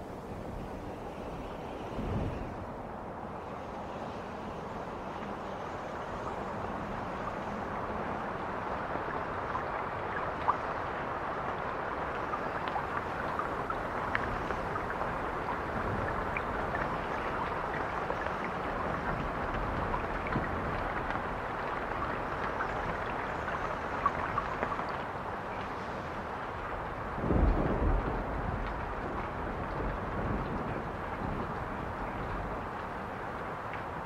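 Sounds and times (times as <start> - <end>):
rushing water-like noise: 0.0 - 34.0
small pops and drips: 9.2 - 34.0.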